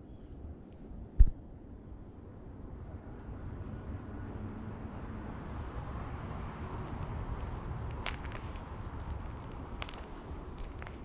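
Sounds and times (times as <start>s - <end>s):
insect calling in high trills: 0.0s - 0.6s.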